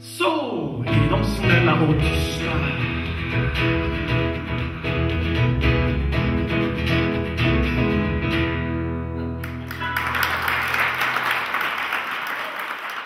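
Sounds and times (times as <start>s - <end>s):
acoustic guitar: 0.1s - 10.2s
digital piano playing: 0.9s - 10.2s
audience applauding: 9.4s - 13.0s.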